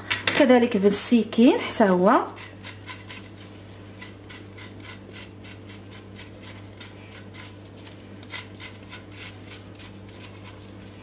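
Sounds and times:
knife scraping ginger skin: 2.3s - 11.0s.

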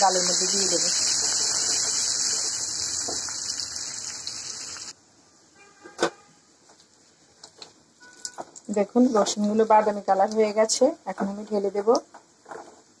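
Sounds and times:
garlic sizzling in hot oil: 0.0s - 5.0s.

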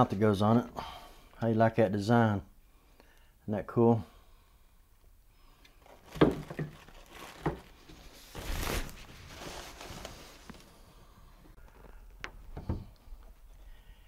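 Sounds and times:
plastic bags crinkling: 5.8s - 10.7s.

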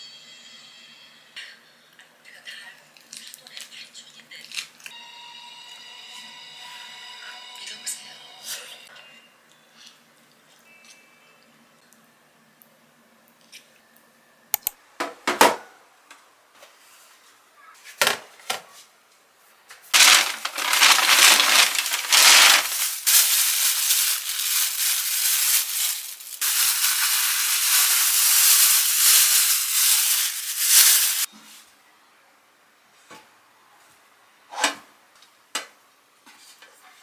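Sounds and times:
sharp clicks and taps: 14.5s - 14.8s
plastic bag crinkling: 19.9s - 31.3s.

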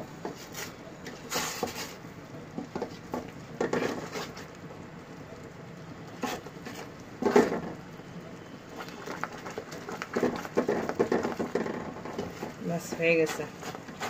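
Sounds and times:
caramel bubbling: 0.0s - 14.0s
spatula scraping metal pot: 6.2s - 7.5s, 9.8s - 14.0s.

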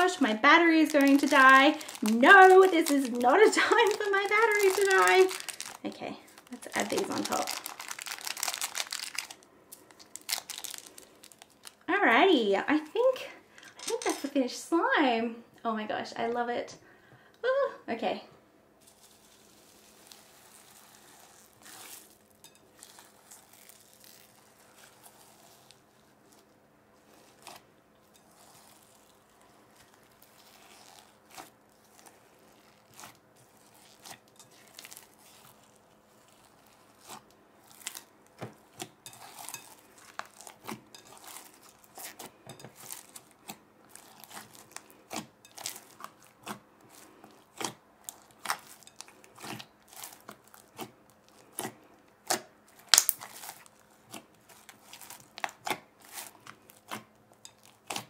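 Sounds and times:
slime squelching and crackling: 0.0s - 11.9s, 18.8s - 58.0s
foam beads popping clicks: 52.9s - 53.3s.

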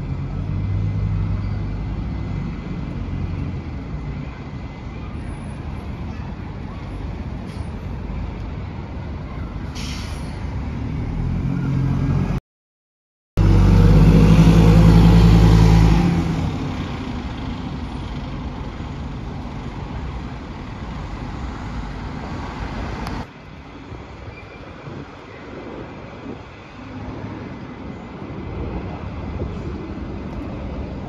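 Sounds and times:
diesel bus accelerating past: 0.0s - 5.9s, 7.1s - 12.4s, 13.4s - 23.3s.

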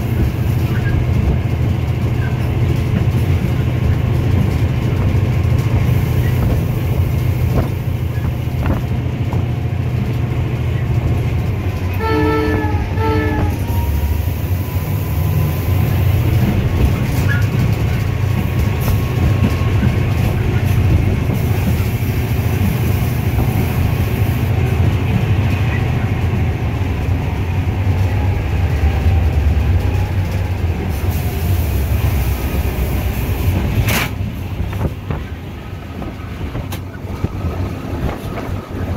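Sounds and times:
diesel locomotive engine running: 0.0s - 38.9s
locomotive horn blasts: 11.8s - 14.2s.

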